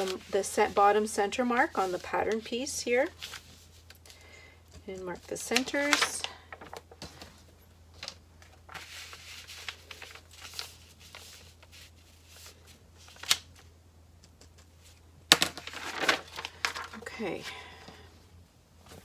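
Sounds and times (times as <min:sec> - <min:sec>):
paper rustling: 0:00.0 - 0:04.1, 0:05.2 - 0:13.7, 0:14.6 - 0:17.3.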